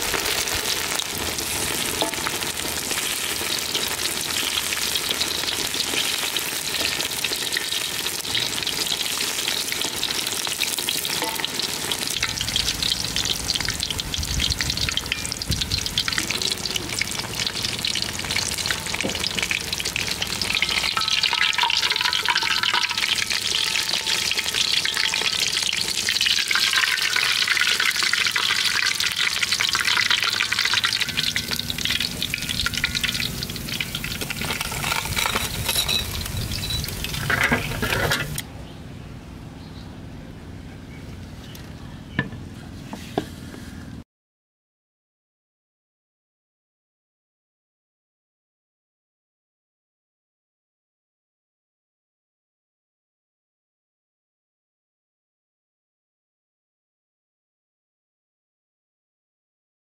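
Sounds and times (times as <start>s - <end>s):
hot oil sizzling and crackling: 0.0s - 38.4s.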